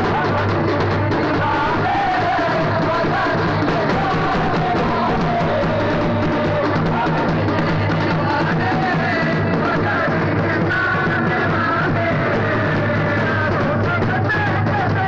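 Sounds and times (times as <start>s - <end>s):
marching band drums: 0.0s - 15.0s.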